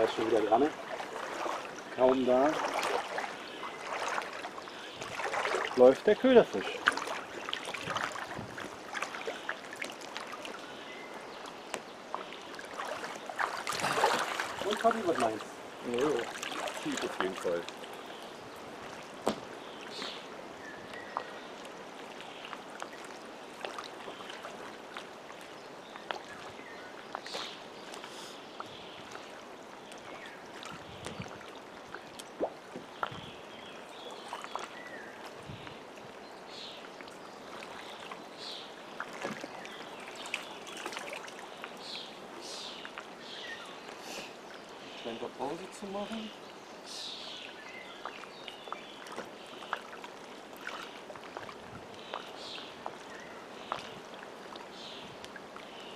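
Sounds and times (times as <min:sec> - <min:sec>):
water lapping around legs: 0:00.0 - 0:55.9.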